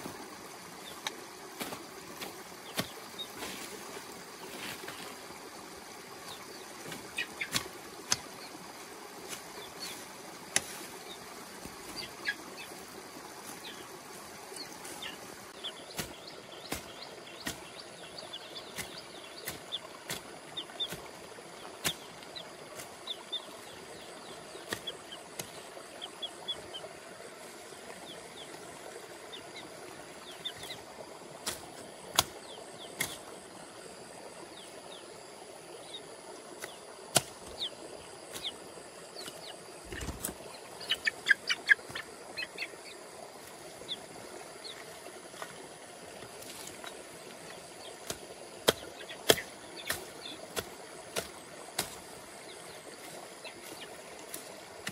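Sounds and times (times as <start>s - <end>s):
birds chirping: 0.0s - 8.8s, 9.4s - 26.9s, 27.6s - 30.9s, 32.1s - 33.4s, 35.8s - 45.5s, 46.5s - 54.9s
steady outdoor hiss: 0.0s - 54.9s
machete chopping weeds: 0.9s - 5.1s, 6.8s - 8.5s, 9.3s - 11.0s, 15.8s - 23.0s, 24.2s - 25.8s, 30.6s - 33.4s, 36.6s - 37.6s, 38.3s - 38.6s, 46.2s - 52.2s, 53.0s - 54.9s.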